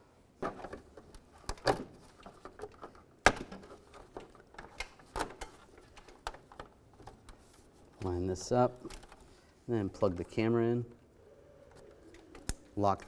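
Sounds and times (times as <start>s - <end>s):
sharp plastic clicks: 11.7s - 13.0s.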